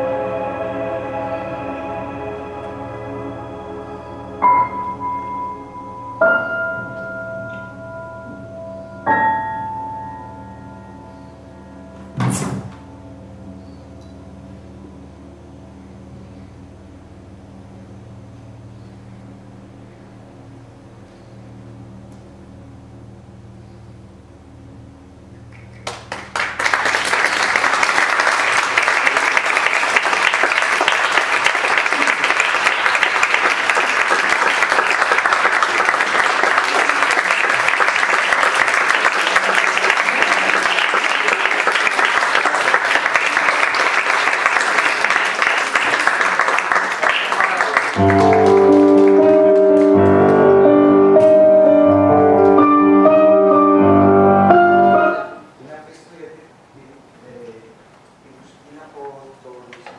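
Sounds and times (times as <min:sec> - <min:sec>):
music with held chords: 0:00.0 - 0:12.2, 0:48.0 - 0:55.5
audience applauding: 0:25.5 - 0:52.7.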